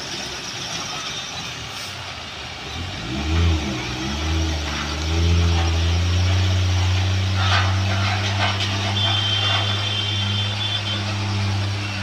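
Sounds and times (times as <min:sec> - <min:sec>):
diesel truck engine revving: 0:02.6 - 0:12.0.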